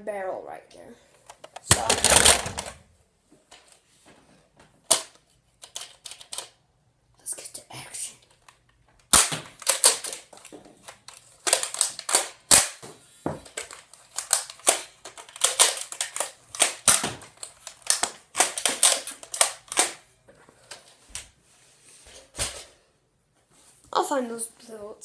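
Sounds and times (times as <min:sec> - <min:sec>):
toy blaster clacking and snapping: 0:01.4 - 0:02.8, 0:04.9 - 0:06.6, 0:08.4 - 0:12.8, 0:13.4 - 0:20.0.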